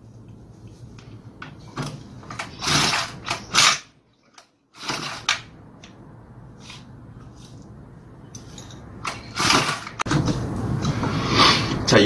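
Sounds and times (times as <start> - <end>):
recoil starter rope rasping: 2.4 - 3.9, 9.1 - 10.0.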